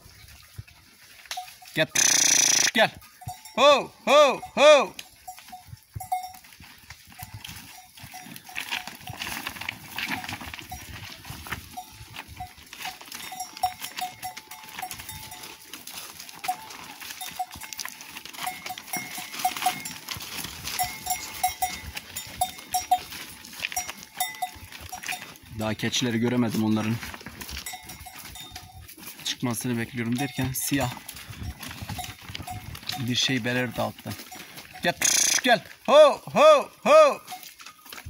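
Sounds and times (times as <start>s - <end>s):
animal bells clinking: 0.0s - 38.0s
hooves knocking on stones: 0.0s - 38.0s.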